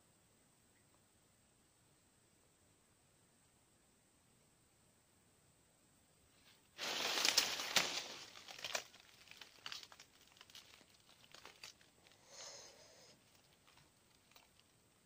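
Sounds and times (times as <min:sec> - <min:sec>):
crinkling rustle: 0:06.4 - 0:15.0
small crackles and clicks: 0:06.8 - 0:15.0.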